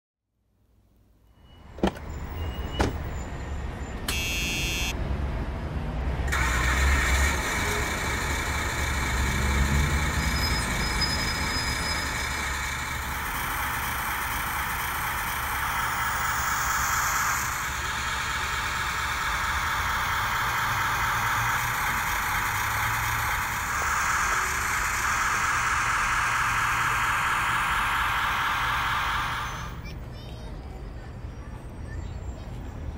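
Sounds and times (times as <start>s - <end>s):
truck engine rumbling: 1.7s - 32.9s
steady whine: 6.3s - 29.9s.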